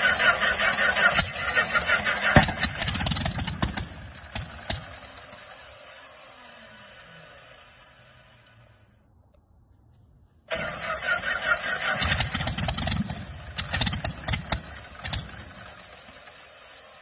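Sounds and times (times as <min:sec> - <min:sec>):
aircraft engine starting with bangs: 0:00.0 - 0:05.8, 0:10.5 - 0:16.6.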